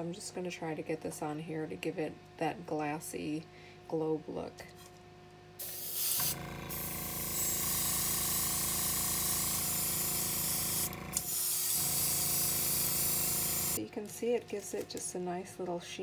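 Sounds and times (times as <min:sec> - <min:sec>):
air compressor pulsing hum: 0:05.6 - 0:13.8
airbrush hissing: 0:05.6 - 0:13.8.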